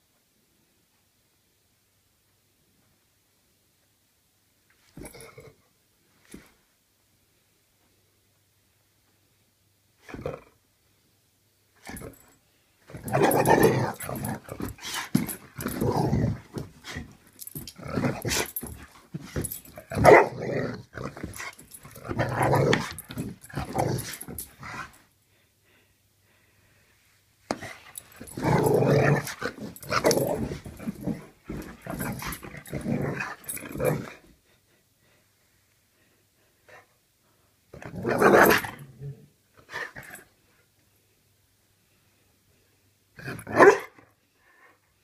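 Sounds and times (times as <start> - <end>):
dog growling in play: 12.9 - 18.8, 19.4 - 24.9, 28.2 - 34.2
dog barking: 43.6 - 44.0.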